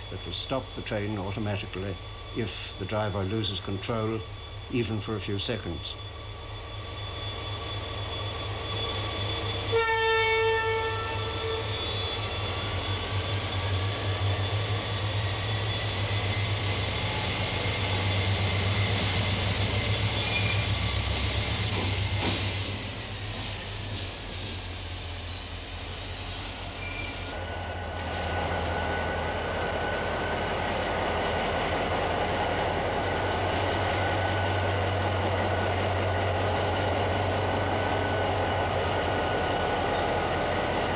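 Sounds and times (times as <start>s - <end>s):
diesel locomotive engine droning: 0.0s - 40.9s
locomotive engine high whine: 0.0s - 40.9s
locomotive horn blast: 9.7s - 11.7s.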